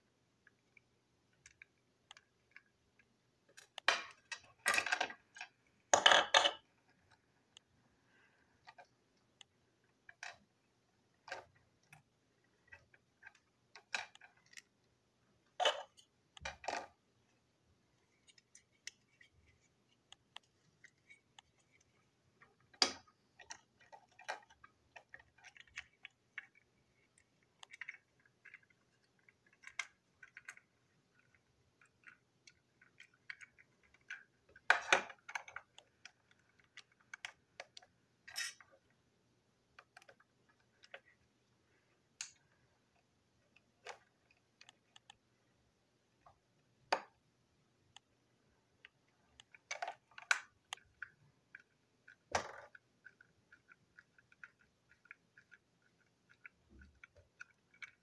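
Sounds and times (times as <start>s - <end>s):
plastic toy parts clicking: 3.5s - 7.7s, 11.2s - 14.8s, 15.5s - 17.0s, 18.2s - 38.9s, 39.7s - 41.2s, 48.8s - 58.0s.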